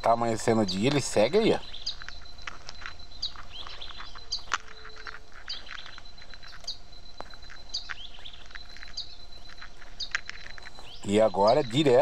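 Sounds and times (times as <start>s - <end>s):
faint low hum: 0.0s - 12.0s
steady high thin whine: 0.0s - 12.0s.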